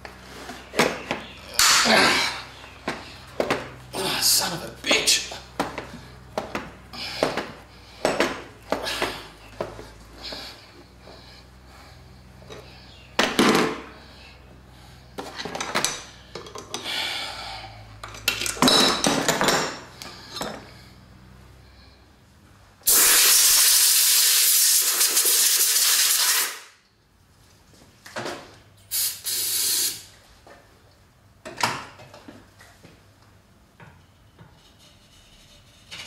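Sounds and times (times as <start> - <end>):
aerosol can spraying: 22.9 - 26.6, 28.9 - 30.0.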